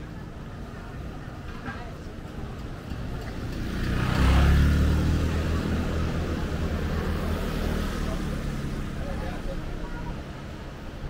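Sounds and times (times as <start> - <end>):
vehicle passing by: 3.3 - 9.7.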